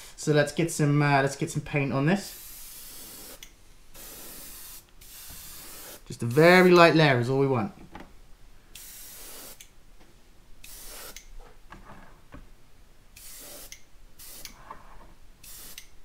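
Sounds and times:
airbrush spraying hissing air: 0:02.2 - 0:07.0, 0:08.7 - 0:09.7, 0:10.6 - 0:11.3, 0:13.2 - 0:14.6, 0:15.4 - 0:16.0.

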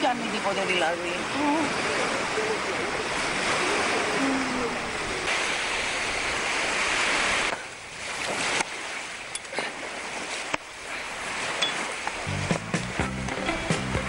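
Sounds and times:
sea waves breaking on beach: 0:00.0 - 0:13.0
music with repeating bass: 0:12.3 - 0:14.0.

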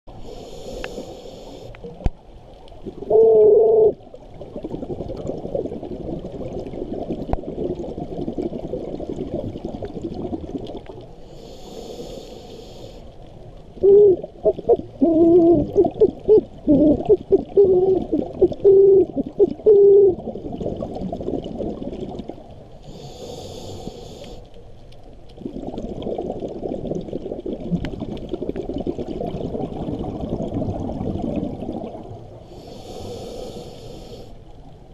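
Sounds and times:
regulator inhalation hiss: 0:00.2 - 0:01.8, 0:11.3 - 0:13.2, 0:22.8 - 0:24.5, 0:32.5 - 0:34.4
exhaust bubbles rushing: 0:25.4 - 0:32.2.

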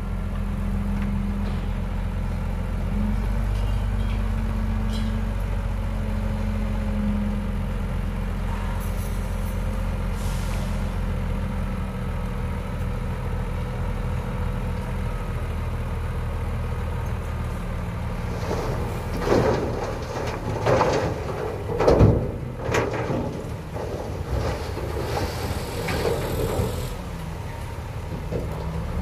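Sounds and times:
truck engine running: 0:00.0 - 0:29.0
soil rushing out of truck bed: 0:18.0 - 0:28.7.

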